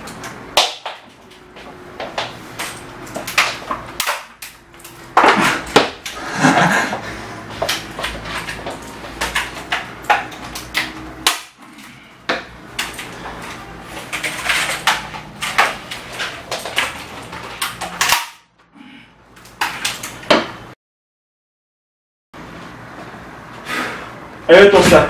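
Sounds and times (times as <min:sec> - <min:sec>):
plastic keyboard cracking and snapping: 0:02.2 - 0:06.2, 0:07.6 - 0:11.6, 0:12.3 - 0:18.4.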